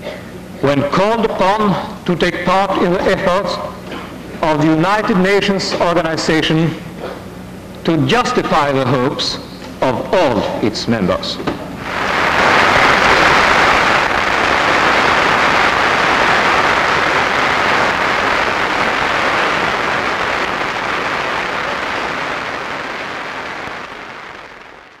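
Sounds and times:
crowd applauding: 11.8s - 25.0s.

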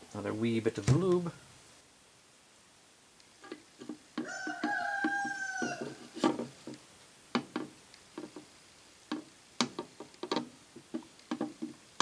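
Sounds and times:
metal parts clicking and tapping: 9.1s - 11.8s.

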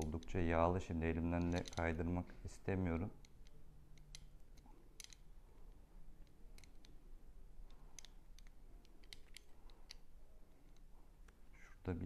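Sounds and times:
small metal clicks: 0.0s - 0.6s, 1.2s - 2.2s, 2.9s - 7.0s, 7.6s - 11.4s.

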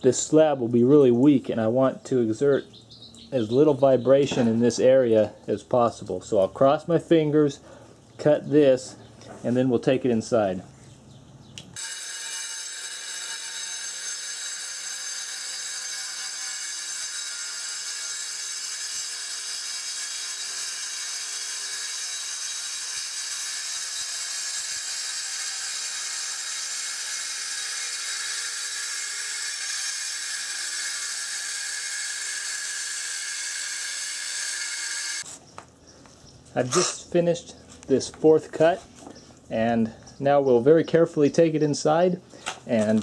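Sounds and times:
circular saw cutting stone: 11.8s - 35.3s.

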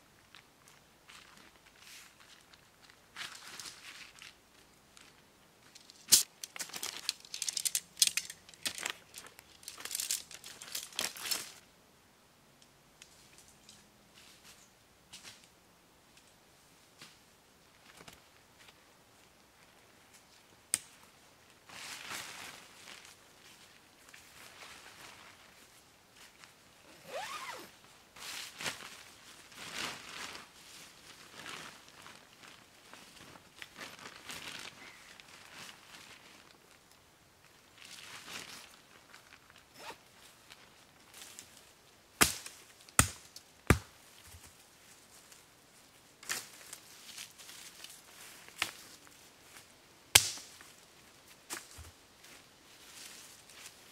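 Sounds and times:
tent poles clicking together: 5.7s - 11.6s, 27.1s - 27.6s
tent door zipper pulled: 26.9s - 27.7s, 39.8s - 40.0s.

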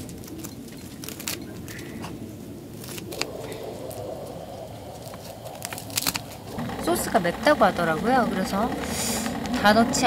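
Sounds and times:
low rushing background: 2.2s - 10.0s.

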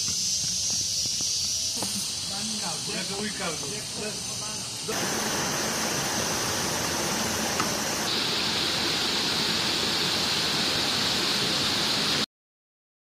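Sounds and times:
steady high hiss: 0.0s - 12.3s
stream water running over rocks: 4.9s - 12.3s.

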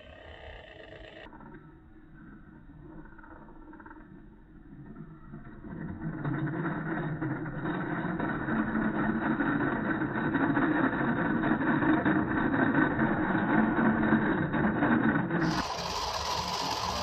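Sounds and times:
toy truck motor drone: 0.0s - 1.3s, 6.4s - 17.0s.

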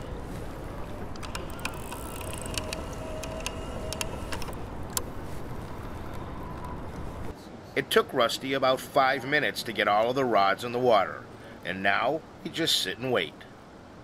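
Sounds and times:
fishing rods clicking: 1.1s - 5.1s.

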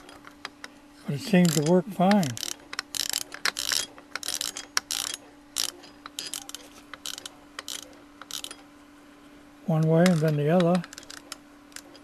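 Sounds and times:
handwheel detent clicking: 1.4s - 8.6s, 9.8s - 12.0s.

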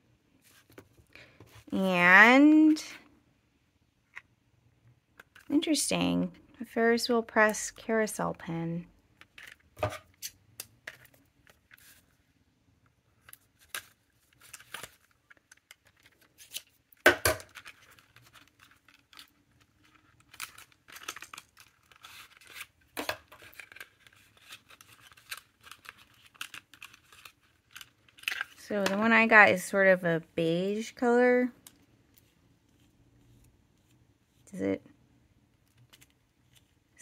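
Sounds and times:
paper and plastic rustling: 10.9s - 12.2s, 13.2s - 29.5s.

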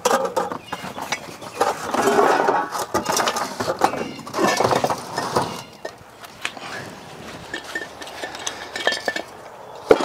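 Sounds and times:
metal tools clinking and rattling: 0.0s - 6.0s, 6.6s - 10.0s.

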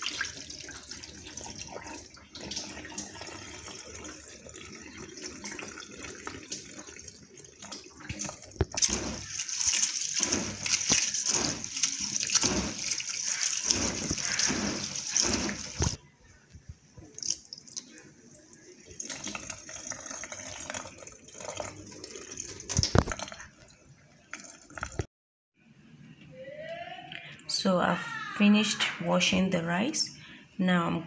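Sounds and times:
water trickling and splashing: 0.0s - 16.0s, 17.0s - 25.1s
rice swishing in water: 8.8s - 16.0s.

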